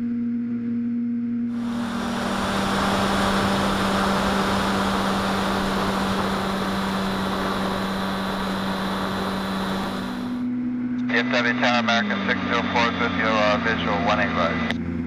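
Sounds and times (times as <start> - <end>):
loud rush of air: 1.5 - 10.5
electric motor and propeller hum: 1.5 - 11.2.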